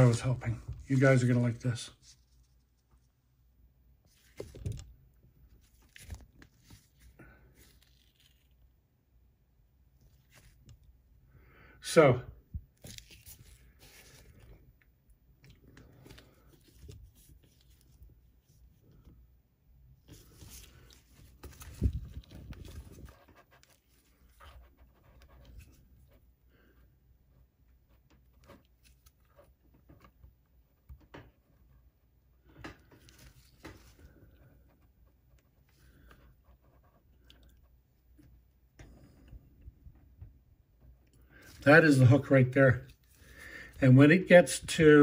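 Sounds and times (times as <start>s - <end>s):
faint handling noises: 12.5s - 26.8s, 27.4s - 45.0s.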